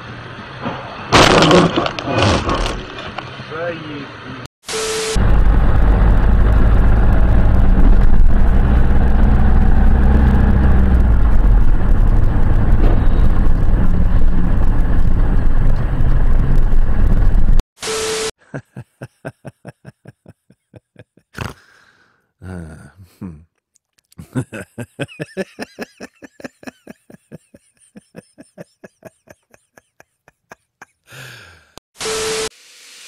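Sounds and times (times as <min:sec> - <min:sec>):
engine and road rumble: 0:00.0 - 0:17.6.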